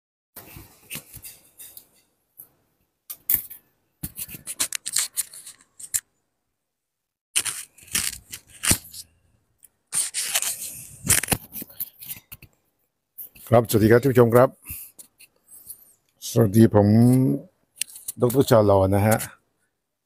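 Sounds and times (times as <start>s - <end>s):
scraping and clicking: 3.1s - 6.1s.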